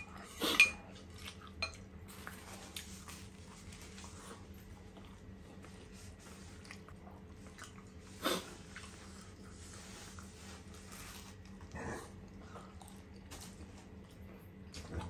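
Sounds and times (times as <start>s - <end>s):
chewing with wet mouth clicks: 0.8s - 5.9s, 6.6s - 8.0s, 11.4s - 15.0s.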